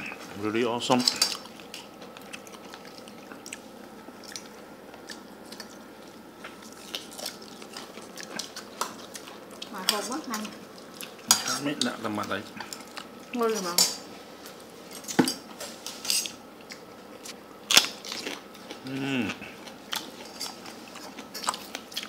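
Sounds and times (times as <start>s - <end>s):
chewing: 1.0s - 11.9s, 16.2s - 22.0s.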